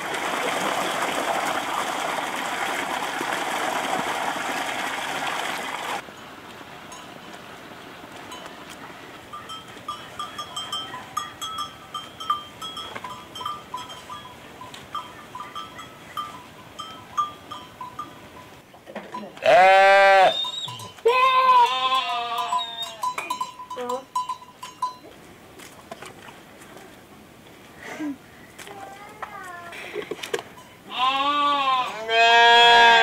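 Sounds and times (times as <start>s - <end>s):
goat bleating: 19.4s - 20.4s, 21.0s - 23.0s, 30.9s - 33.0s.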